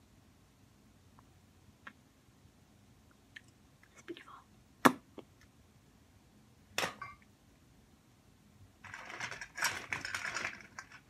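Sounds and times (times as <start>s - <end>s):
makeup items clattering: 8.8s - 11.0s.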